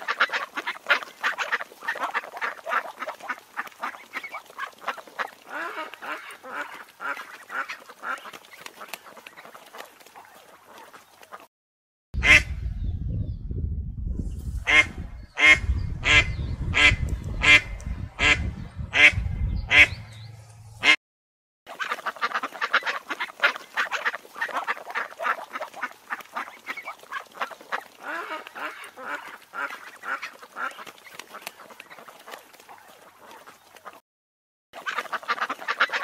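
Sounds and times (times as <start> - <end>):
ducks quacking: 0.0 - 11.5, 12.2 - 12.6, 14.6 - 21.0, 21.7 - 34.0, 34.8 - 36.0
low rumble: 12.2 - 21.0.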